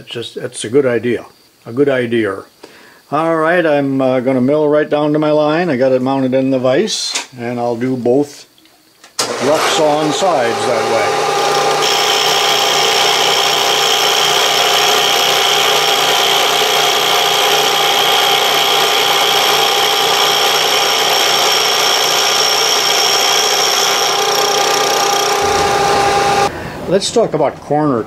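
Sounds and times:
milling machine cutting whine: 9.2 - 26.5
spindle low hum: 10.6 - 26.8.

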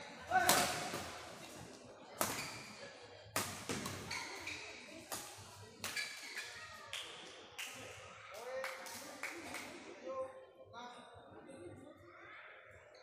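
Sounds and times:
rackets hitting shuttlecock: 0.3 - 1.2, 2.2 - 4.5.

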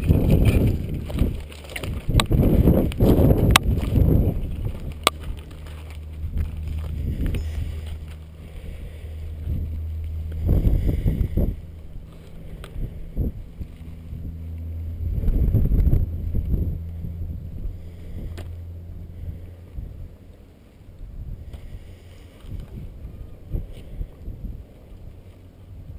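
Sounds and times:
wind buffeting microphone: 0.0 - 20.3, 20.9 - 25.9
steady low hum: 0.0 - 25.9.

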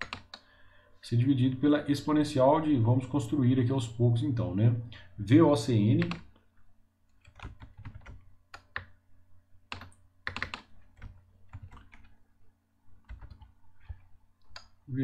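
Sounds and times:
computer keyboard typing: 0.0 - 0.4, 6.0 - 6.3, 7.1 - 8.9, 9.7 - 12.2, 13.0 - 14.8.

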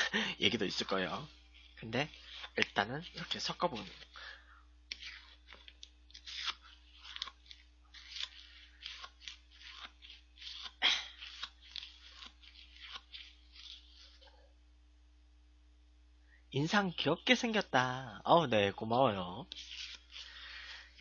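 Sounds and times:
faint steady hum: 0.0 - 21.0
metal spoon scraping shaved ice: 0.5 - 14.2.

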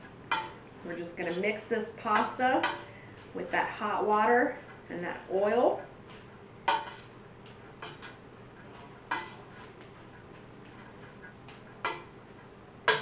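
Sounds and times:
utensil clanking in metal pot: 0.0 - 3.0, 6.6 - 7.1, 9.1 - 9.5.

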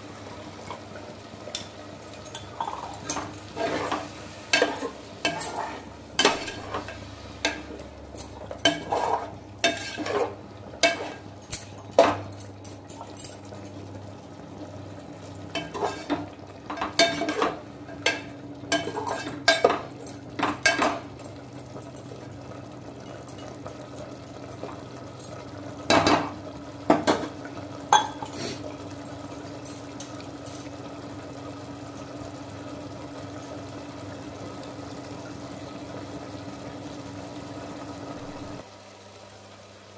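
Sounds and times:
metal spoon scraping a pot: 3.0 - 6.8, 8.7 - 11.2, 15.6 - 16.2.

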